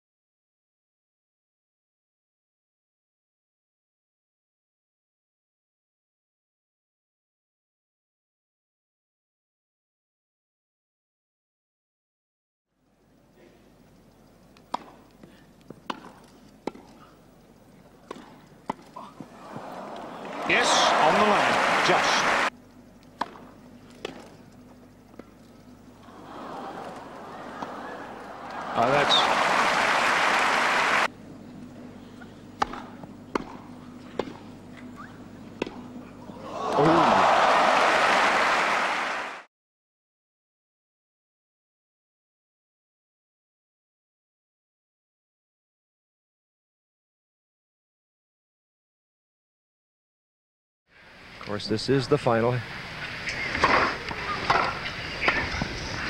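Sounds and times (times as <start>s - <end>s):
rackets hitting tennis ball: 15.8s - 17.0s, 18.0s - 18.9s, 23.2s - 24.4s, 32.6s - 34.4s, 35.6s - 35.8s
tennis racket hitting ball: 15.9s - 16.9s, 32.6s - 33.6s
crowd applause: 19.4s - 22.5s, 26.0s - 31.1s, 36.4s - 39.5s.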